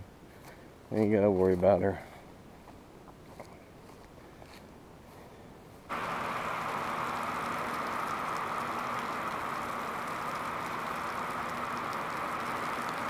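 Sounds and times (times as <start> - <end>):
heavy rain on gravel: 5.9 - 13.0.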